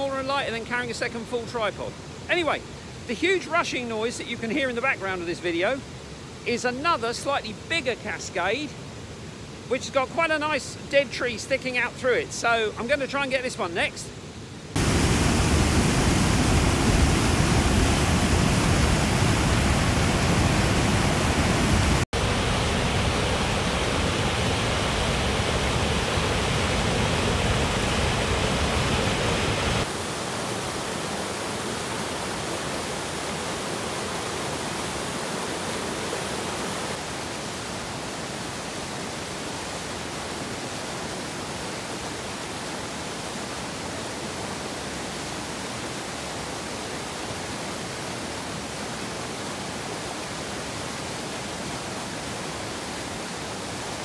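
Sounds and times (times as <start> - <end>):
water rushing over a weir: 14.7 - 54.0.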